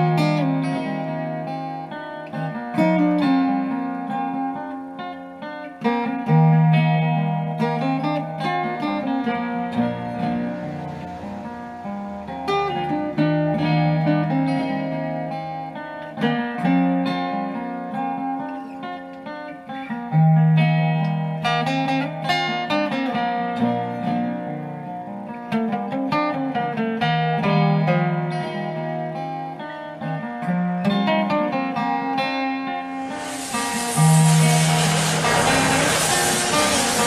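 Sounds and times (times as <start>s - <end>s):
acoustic folk guitar: 0.0s - 37.0s.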